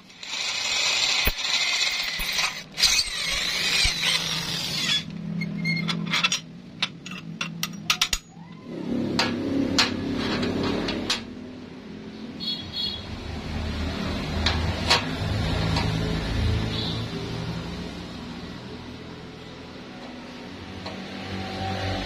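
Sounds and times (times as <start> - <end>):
high-pitched gritty grinding: 0.0 - 5.2.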